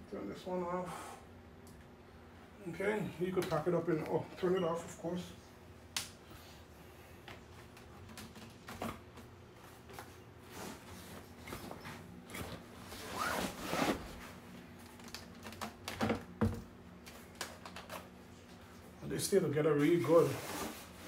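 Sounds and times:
fabric bag rustling and scraping: 0:12.8 - 0:14.4.

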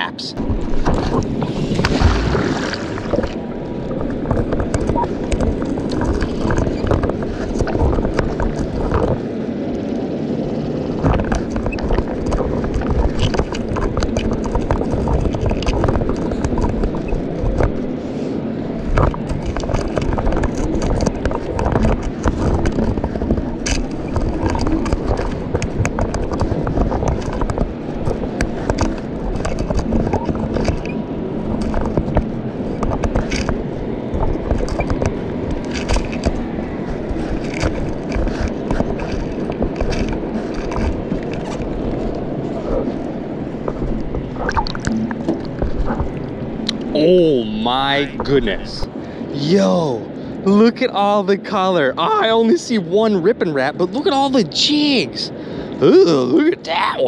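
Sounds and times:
magnet scraping riverbed: 0:00.4 - 0:49.9
small clicks and knocks: 0:10.9 - 0:17.9, 0:18.8 - 0:42.2.

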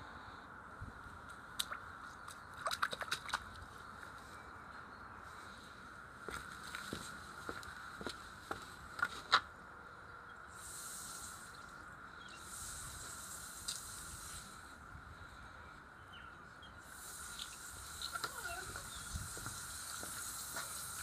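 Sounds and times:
garden hose spraying water: 0:10.5 - 0:11.8, 0:12.4 - 0:14.8, 0:16.8 - 0:21.0.

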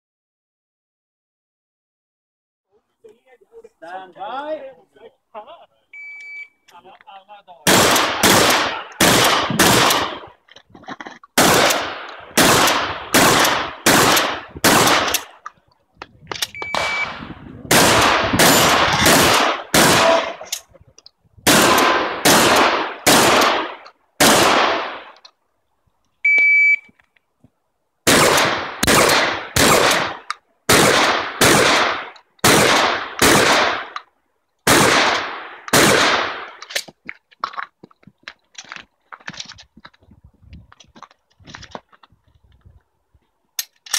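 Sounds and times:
shot timer beep: 0:06.0 - 0:06.6, 0:16.5 - 0:17.2, 0:26.3 - 0:26.9
shotgun shots with echo: 0:07.6 - 0:10.3, 0:11.4 - 0:15.3, 0:16.8 - 0:20.4, 0:21.5 - 0:25.2, 0:28.1 - 0:34.0, 0:34.7 - 0:36.6.

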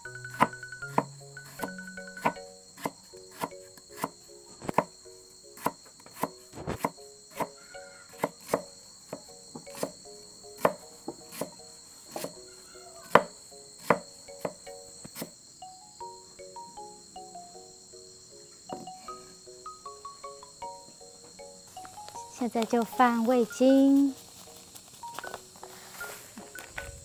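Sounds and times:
cleaver chopping on wooden block: 0:00.3 - 0:04.9, 0:05.6 - 0:10.0, 0:10.6 - 0:12.4, 0:13.0 - 0:15.4.

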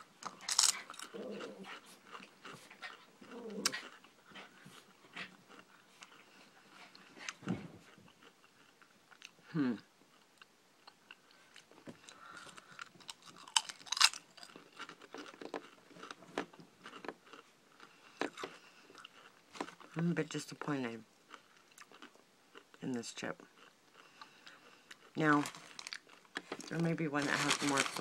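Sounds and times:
potato chip crunching: 0:00.1 - 0:04.0, 0:12.0 - 0:20.5, 0:21.3 - 0:28.0.

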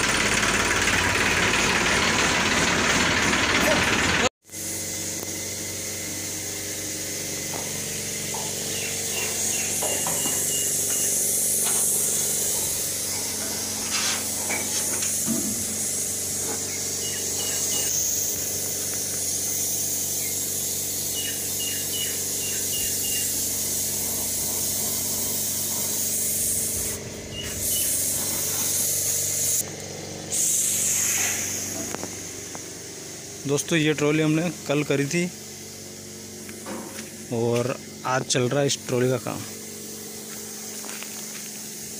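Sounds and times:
engine hum: 0:00.0 - 0:41.9
paint spray gun hissing: 0:00.1 - 0:41.9.

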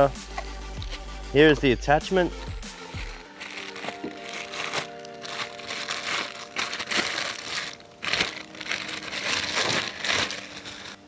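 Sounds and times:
plastic bag crinkling and rustling: 0:02.9 - 0:11.0.

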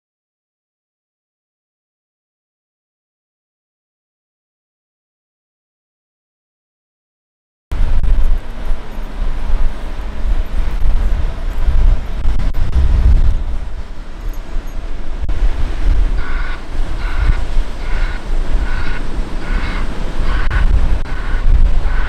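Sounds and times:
diesel engine rumble: 0:07.7 - 0:22.0
wind buffeting microphone: 0:07.7 - 0:22.0
repeating beep: 0:16.2 - 0:21.6.

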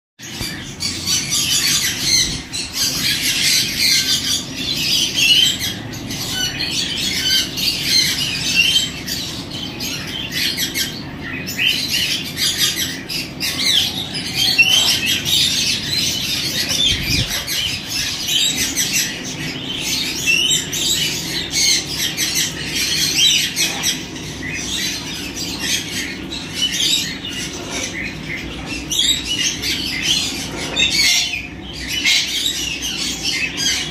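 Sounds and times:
caged birds chattering and squawking: 0:00.2 - 0:33.9.

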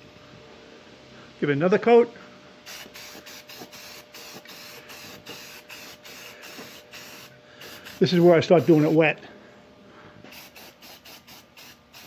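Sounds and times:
spray can hissing in pulses: 0:02.7 - 0:08.9, 0:10.3 - 0:12.0.

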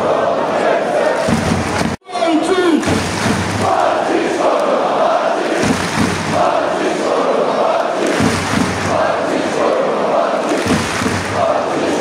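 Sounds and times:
football crowd chanting: 0:00.0 - 0:02.0, 0:02.8 - 0:12.0.

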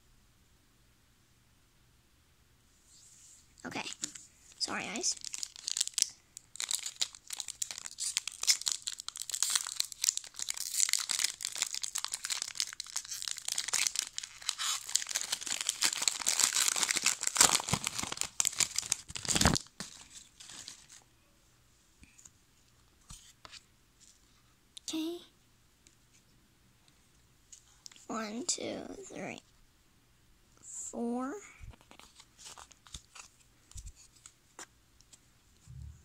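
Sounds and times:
foil wrapper crinkling and tearing: 0:03.8 - 0:21.0, 0:31.8 - 0:33.4.

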